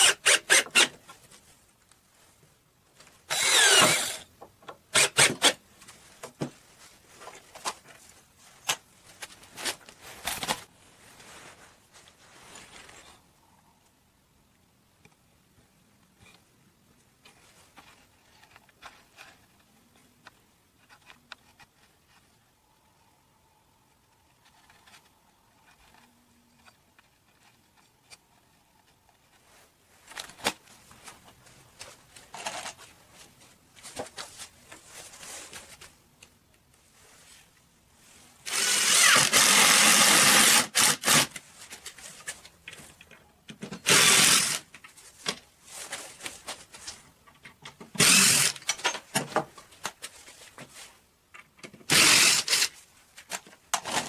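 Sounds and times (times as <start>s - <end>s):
cordless drill drilling into wood: 0.0s - 0.9s, 3.3s - 4.3s, 5.0s - 5.6s, 38.5s - 41.3s, 43.9s - 44.6s, 48.0s - 48.6s, 51.9s - 52.7s
knocks and handling of wood: 0.3s - 13.2s, 24.1s - 36.8s, 40.8s - 51.9s.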